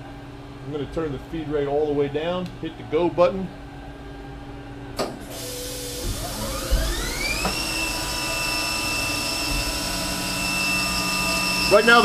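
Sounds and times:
machine hum: 0.0s - 12.0s
mill spindle whine: 3.4s - 12.0s.

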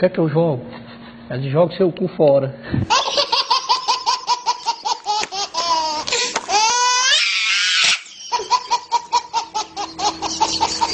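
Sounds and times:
person laughing hard: 2.8s - 10.9s.

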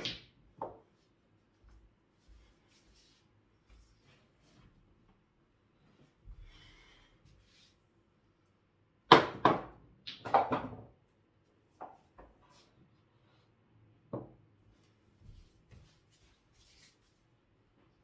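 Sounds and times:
pool balls clacking: 9.1s - 11.0s.

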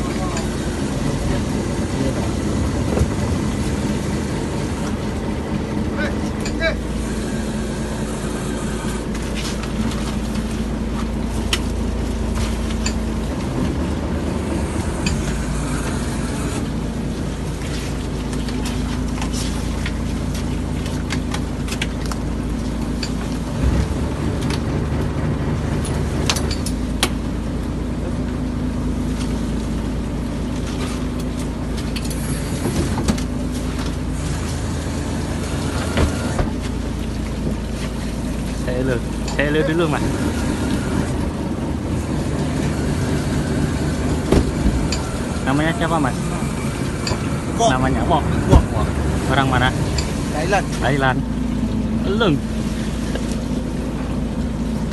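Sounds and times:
boat engine running: 0.0s - 54.9s.

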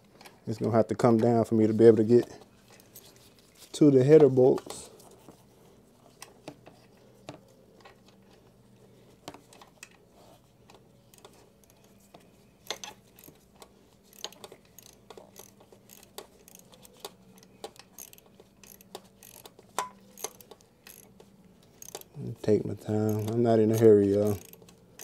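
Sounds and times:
socket ratchet clicking: 12.6s - 22.1s, 23.0s - 25.0s
small metal clicks: 12.6s - 22.2s, 22.8s - 25.0s.

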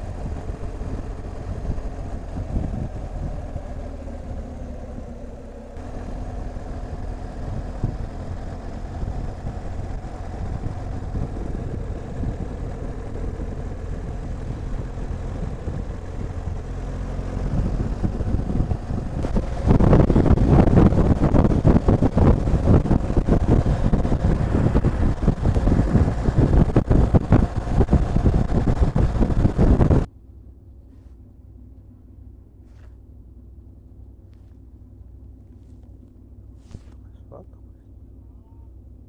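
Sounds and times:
wind on microphone: 0.0s - 4.8s, 5.8s - 30.1s
motorcycle engine running: 0.0s - 39.0s.

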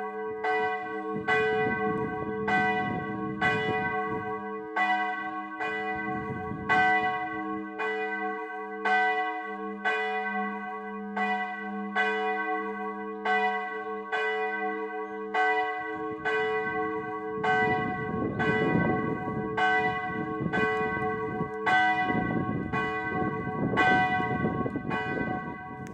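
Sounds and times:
church bell ringing: 0.0s - 25.9s.

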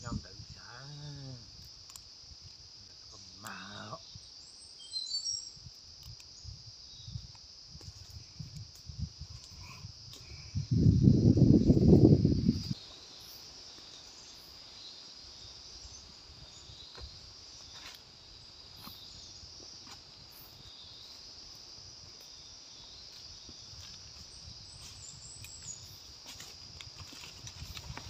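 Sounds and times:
insects chirring: 0.0s - 28.0s
footsteps on dry leaves: 23.2s - 28.0s.

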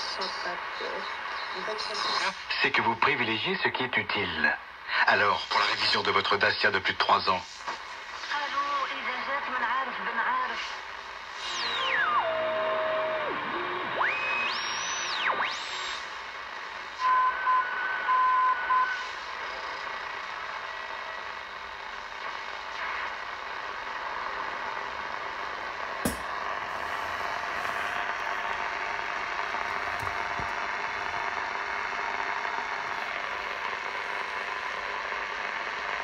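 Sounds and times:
radio static hiss: 0.0s - 36.0s
radio tuning whistles: 10.5s - 23.5s.

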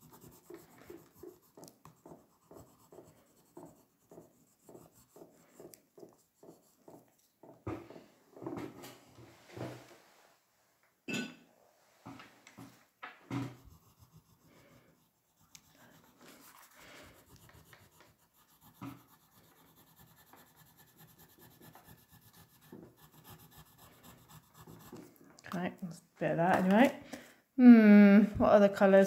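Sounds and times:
oil pastel scribbling on paper: 0.0s - 7.4s, 13.4s - 25.2s.

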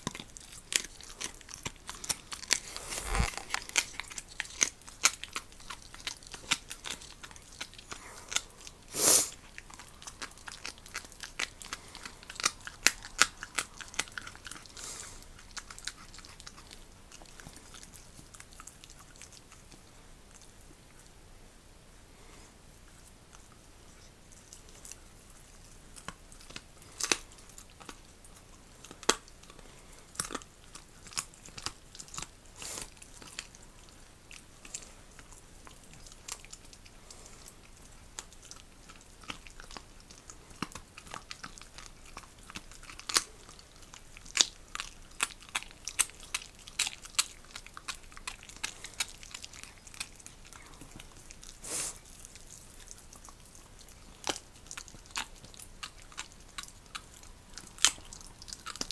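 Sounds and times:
dog chewing bone: 0.0s - 21.2s, 22.8s - 58.9s.

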